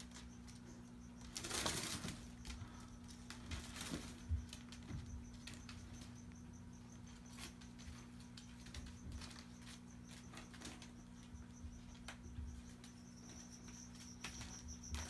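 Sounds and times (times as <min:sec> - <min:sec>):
faint high pulsing chirp: 0:00.0 - 0:15.0
low steady hum: 0:00.0 - 0:15.0.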